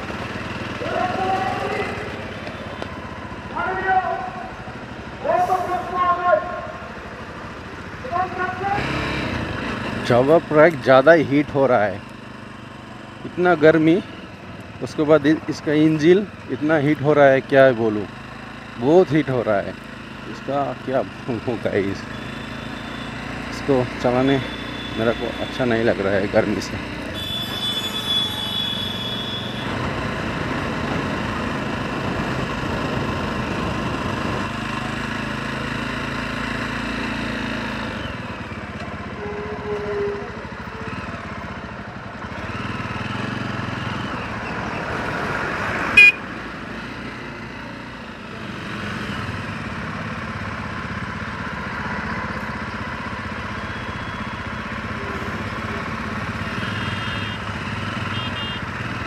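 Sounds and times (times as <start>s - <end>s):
motorcycle engine: 0.0s - 59.0s
traffic horns: 22.0s - 26.0s, 27.0s - 30.4s, 38.8s - 41.2s, 45.7s - 46.6s, 53.3s - 59.0s.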